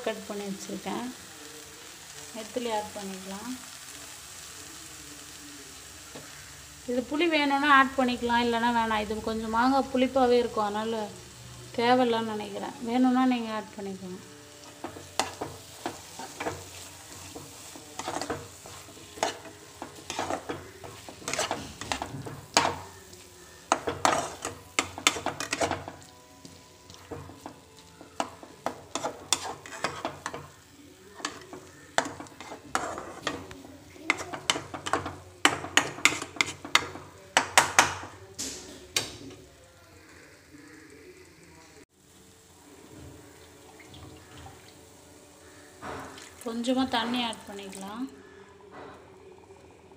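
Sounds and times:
light sizzle: 0.0 - 49.9
spatula scraping and tapping pan: 14.6 - 22.9, 23.7 - 30.6, 31.2 - 38.2.

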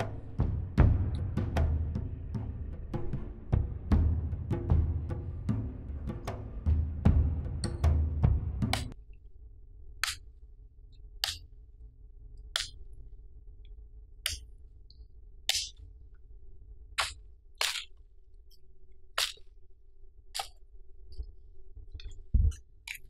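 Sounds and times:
knife chopping wood branch: 17.0 - 17.9.

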